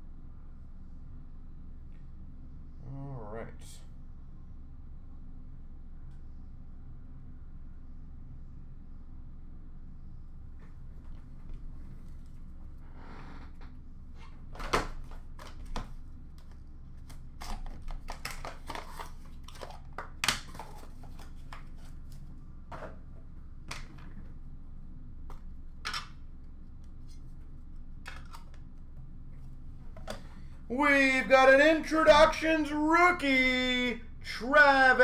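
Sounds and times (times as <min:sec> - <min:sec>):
faint low hum: 0:00.0 - 0:35.0
cards and packaging clicking: 0:14.7 - 0:21.9.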